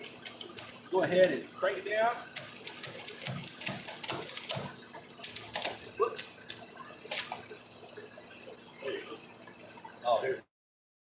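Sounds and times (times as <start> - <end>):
ratchet strap clicking: 0.0 - 1.4, 2.4 - 6.3.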